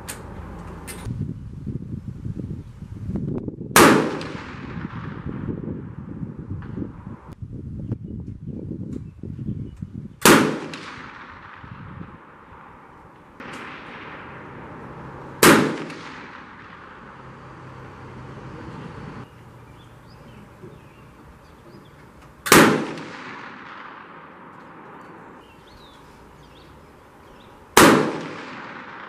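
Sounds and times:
rifle shots with echo: 0:03.8 - 0:06.0, 0:10.2 - 0:17.4, 0:22.4 - 0:25.4, 0:27.8 - 0:29.0.

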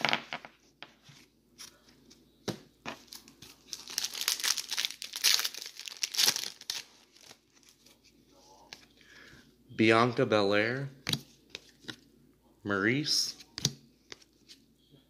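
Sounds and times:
plastic wrapper tearing and crinkling: 0:03.0 - 0:07.8.

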